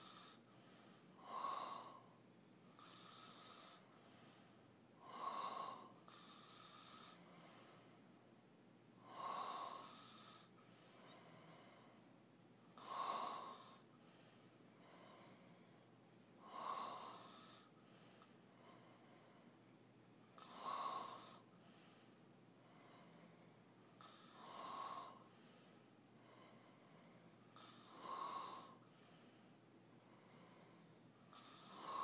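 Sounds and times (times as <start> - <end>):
open-mouth snoring: 0.0 - 0.5, 2.8 - 3.9, 5.0 - 7.8, 9.0 - 11.8, 12.8 - 13.9, 16.4 - 17.8, 20.4 - 21.9, 22.8 - 25.4, 26.7 - 29.2, 30.1 - 32.0.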